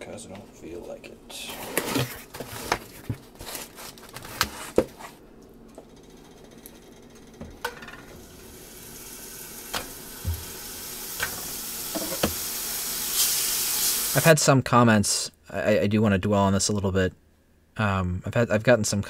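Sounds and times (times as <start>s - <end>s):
burger patties sizzling in a skillet: 8.3s - 14.2s.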